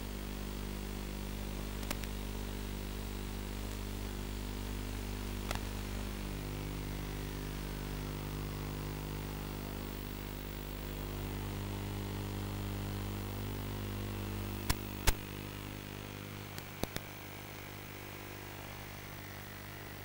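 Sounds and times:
electrical hum with hiss: 0.0 - 20.0
sharp clicks: 1.8 - 2.1, 14.7 - 15.3, 16.6 - 17.1.

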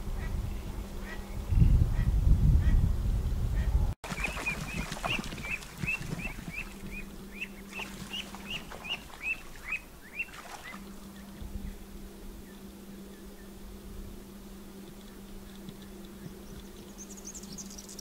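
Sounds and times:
ducklings peeping: 3.6 - 11.4.

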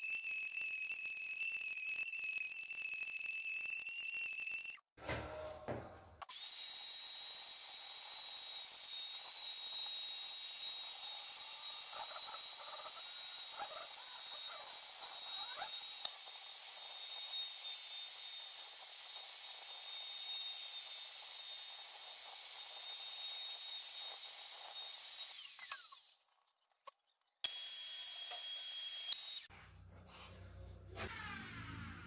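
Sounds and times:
router whining while cutting wood: 6.3 - 26.2, 27.4 - 29.5.

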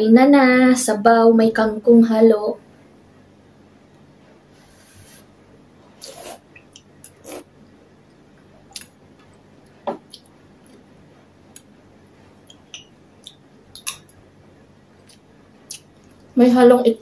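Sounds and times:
slurping soup from spoon: 6.0 - 6.4
soft chewing: 6.0 - 14.2, 14.9 - 16.4.

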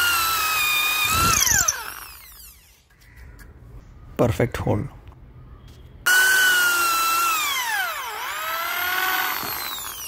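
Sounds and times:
power drill drilling into wood: 0.0 - 2.7, 6.1 - 10.0.

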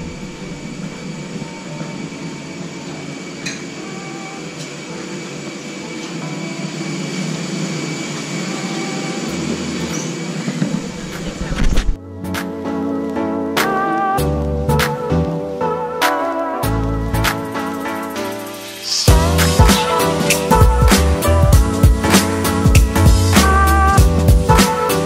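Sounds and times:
airliner rumble and whine: 0.0 - 12.0.

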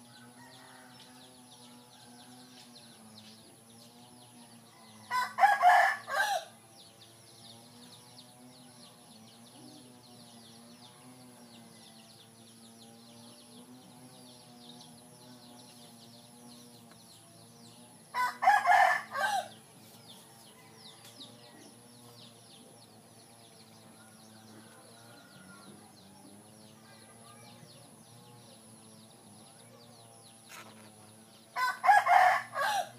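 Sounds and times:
rooster crowing: 0.0 - 2.4, 4.7 - 6.5, 18.1 - 19.6, 23.9 - 26.0, 31.6 - 32.9.

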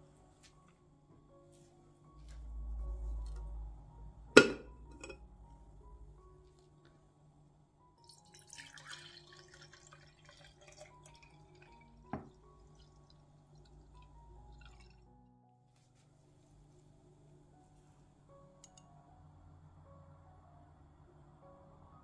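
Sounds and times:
milk trickling into glass jars: 8.0 - 15.0.

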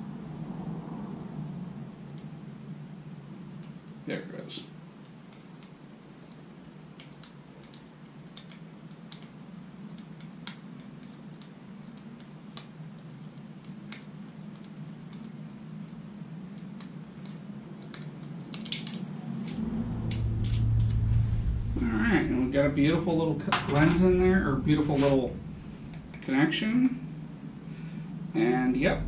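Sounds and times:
steady low hum: 14.2 - 29.0.

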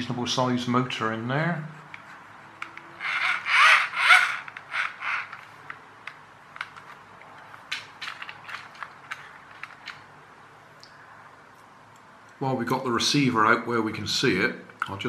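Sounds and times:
plastic gearbox creaking: 2.6 - 5.8, 6.6 - 10.1.

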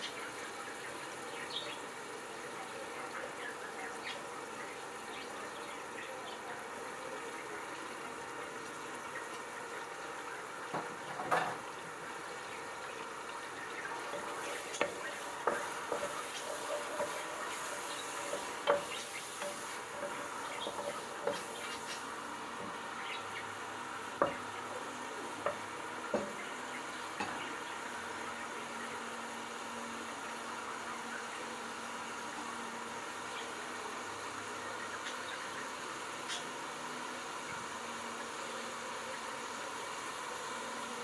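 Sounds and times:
vegetables sizzling in oil: 0.0 - 41.0
wooden spatula knocking on pot: 24.2 - 24.4, 25.4 - 26.4.

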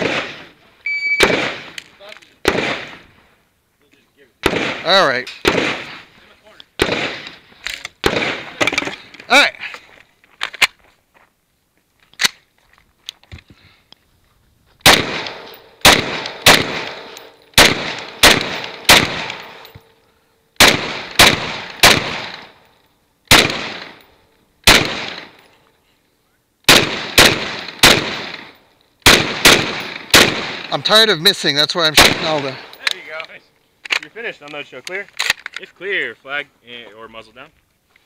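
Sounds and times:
rifle shots with echo: 0.0 - 1.8, 2.4 - 3.1, 4.4 - 6.1, 6.8 - 7.4, 8.0 - 8.8, 14.8 - 19.7, 20.6 - 22.6, 23.3 - 24.0, 24.6 - 25.4, 26.7 - 30.8, 31.8 - 32.9.

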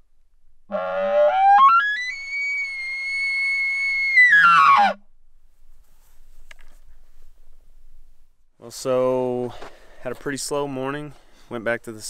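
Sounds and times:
elk call blown through tube: 0.7 - 5.0.

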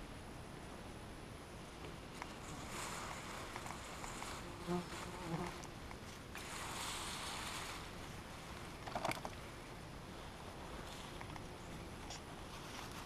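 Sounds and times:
grass rustling: 1.6 - 13.0
insect buzzing: 1.9 - 13.0.

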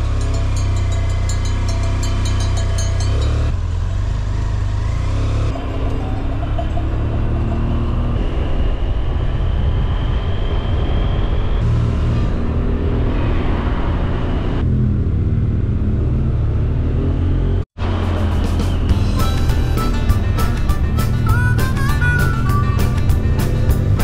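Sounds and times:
motorcycle engine running: 0.0 - 8.5, 14.7 - 24.0
rising whine: 0.0 - 24.0
wind rumble on microphone: 5.6 - 15.7.

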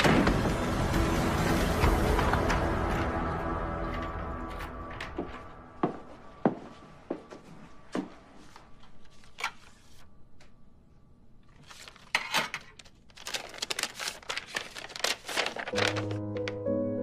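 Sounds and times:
paper rustling and crinkling: 11.5 - 16.6.

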